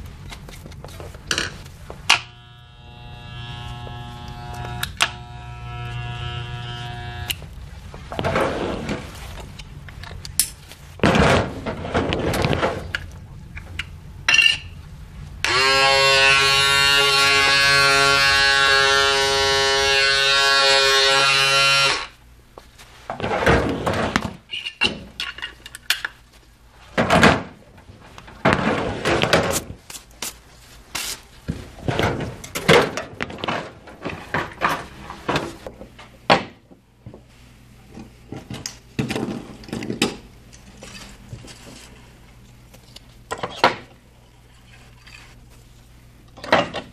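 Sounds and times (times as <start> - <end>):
electric hair clippers buzzing: 2.1 - 7.4, 15.4 - 22.1.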